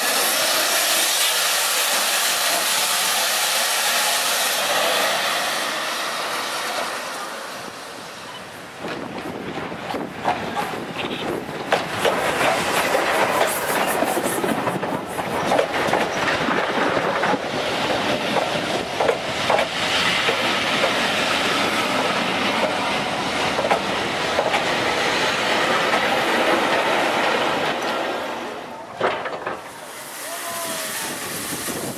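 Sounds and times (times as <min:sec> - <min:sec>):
train wheels clicking over rail joints: 0:07.7 - 0:30.3.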